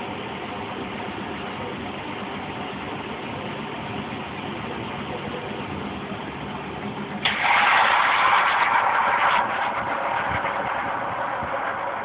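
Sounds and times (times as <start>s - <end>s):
loud hiss: 7.2s - 12.0s.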